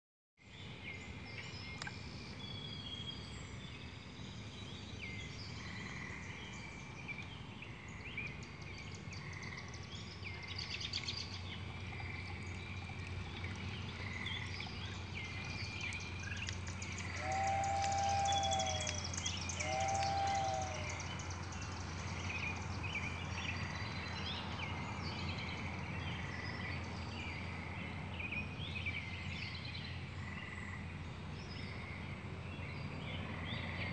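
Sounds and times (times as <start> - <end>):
steady low hum: 0.6 - 33.9
birds chirping: 1.2 - 27.4.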